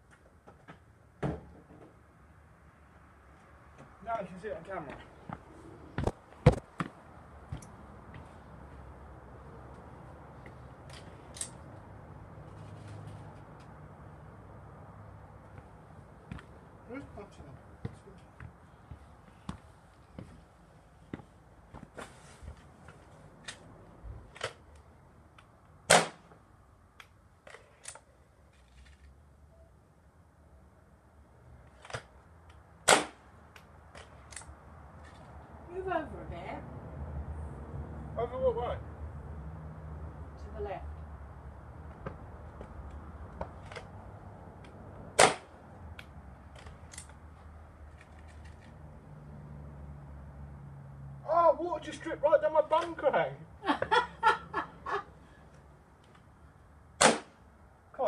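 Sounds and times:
air rifle shot: 25.9 - 26.2, 32.9 - 33.2, 45.2 - 45.5, 57.0 - 57.4
air rifle crack: 32.9 - 33.3, 45.2 - 46.1, 57.0 - 57.4
air rifle handling clicks: 46.0 - 47.2.

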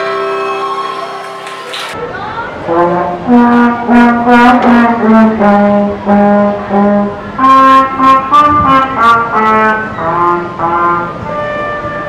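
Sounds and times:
small wind ensemble playing a tune: 2.7 - 12.0.

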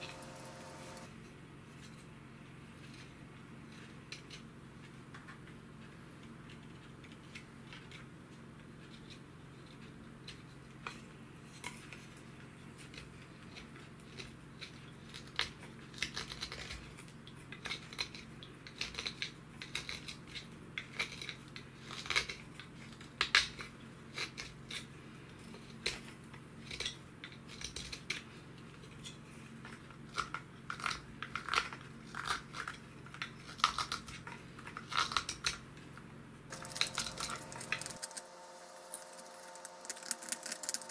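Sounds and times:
faint low hum: 0.0 - 40.9
knife shaving wood: 5.8 - 35.7, 36.5 - 40.9.

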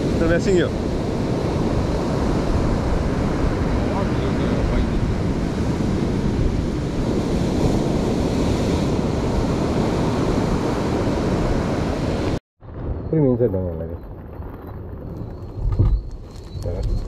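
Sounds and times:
surf breaking on beach: 0.0 - 12.4
wind buffeting microphone: 0.0 - 17.0.

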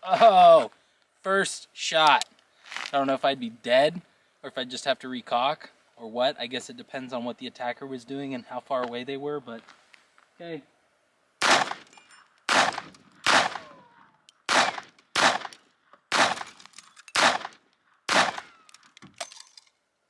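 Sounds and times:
pistol shots with echo: 11.4 - 11.9, 12.5 - 13.8, 14.5 - 18.7.

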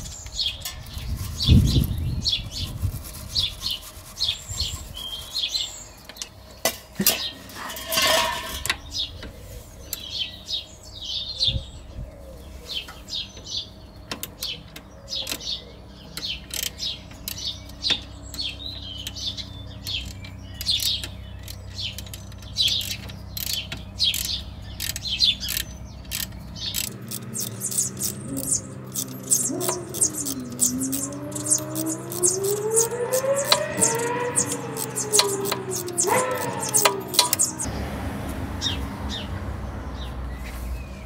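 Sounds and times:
birds chirping: 0.0 - 41.0
socket ratchet clicking: 19.9 - 37.7
steady low hum: 24.4 - 37.7.

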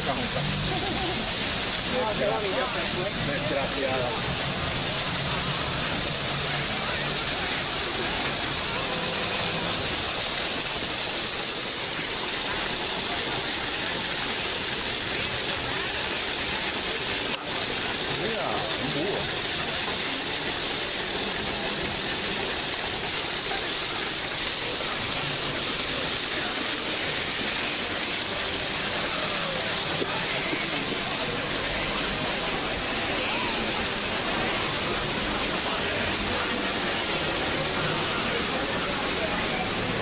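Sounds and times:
faint voices of people: 0.0 - 40.0
waterfall rushing: 0.0 - 40.0.

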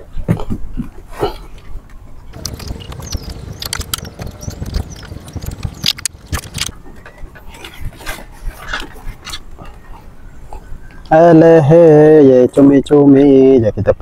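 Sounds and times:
net rattling against boat rail: 2.4 - 6.8.

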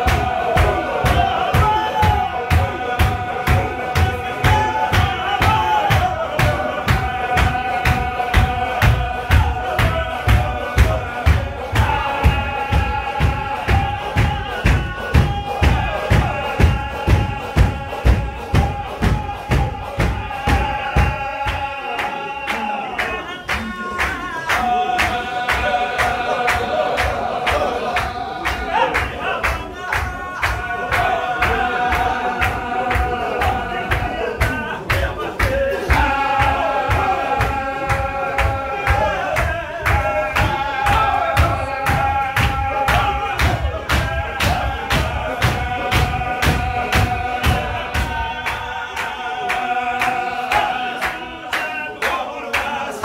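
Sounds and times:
men chanting in unison: 0.0 - 53.0
rhythmic clapping: 0.0 - 53.0
rhythmic stamping: 0.0 - 53.0.

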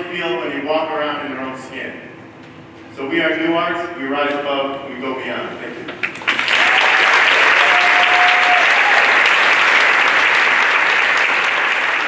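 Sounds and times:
audience applause: 6.0 - 12.0.

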